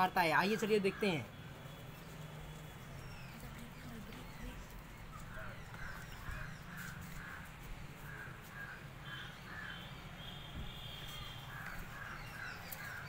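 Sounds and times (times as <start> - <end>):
crows cawing: 0.3 - 1.3, 5.4 - 9.9, 11.5 - 13.0.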